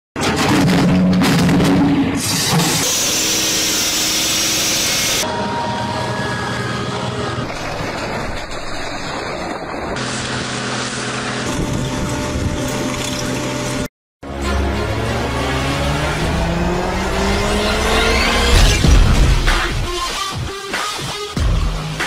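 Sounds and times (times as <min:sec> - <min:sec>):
excavator diesel engines running: 0:10.0 - 0:18.5.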